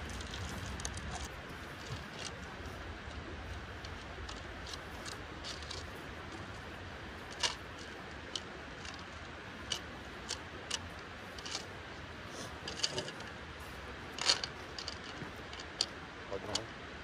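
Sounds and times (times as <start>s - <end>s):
gear clicking and tapping: 0.0s - 11.7s
low steady hiss: 0.0s - 17.0s.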